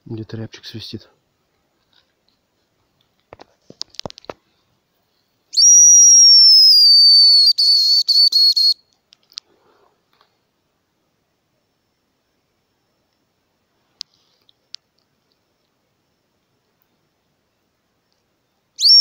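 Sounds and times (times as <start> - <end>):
high whistle of bird call: 5.5 - 8.8, 18.8 - 19.0.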